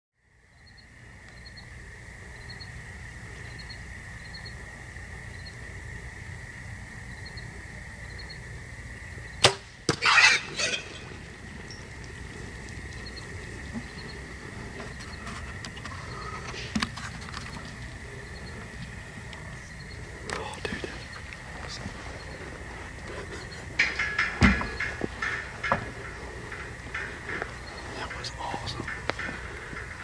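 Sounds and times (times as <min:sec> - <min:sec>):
steady high-pitched hum: 0:00.2 - 0:30.0
faint regular chirps: 0:10.2 - 0:30.0.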